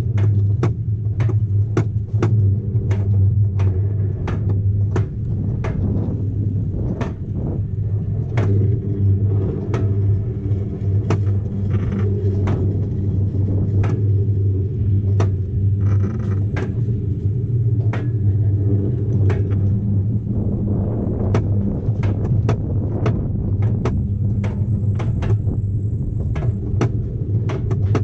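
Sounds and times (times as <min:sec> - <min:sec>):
coaster sled rumbling on track: 0:00.0 - 0:28.0
sharp clicks of track: 0:00.0 - 0:28.0.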